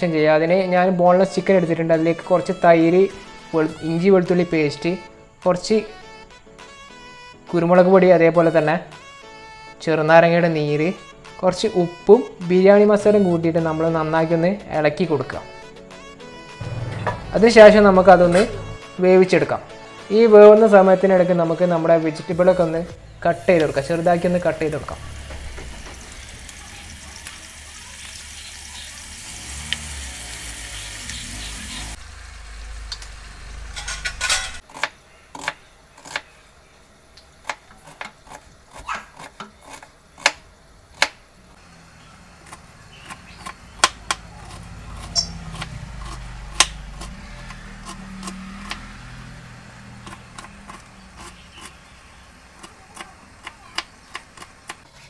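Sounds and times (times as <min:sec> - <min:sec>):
chicken sizzling in hot oil: 0:23.3 - 0:34.6
knife chopping on wooden board: 0:34.6 - 0:36.3, 0:37.4 - 0:41.2, 0:42.4 - 0:49.0, 0:50.0 - 0:51.8.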